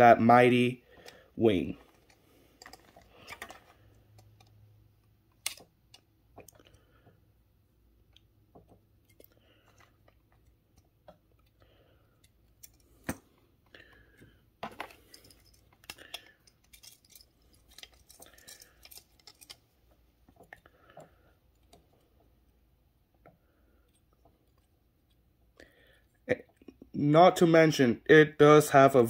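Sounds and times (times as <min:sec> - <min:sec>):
soft handling noise: 0:00.9 - 0:07.2, 0:08.5 - 0:25.6
plastic parts clicking together: 0:05.3 - 0:06.6, 0:14.2 - 0:19.7.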